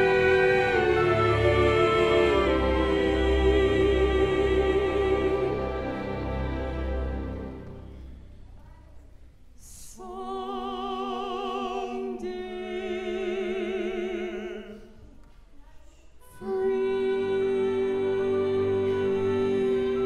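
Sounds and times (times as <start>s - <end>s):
operatic singing with orchestra: 0.0s - 7.9s, 9.6s - 15.0s, 16.2s - 20.0s.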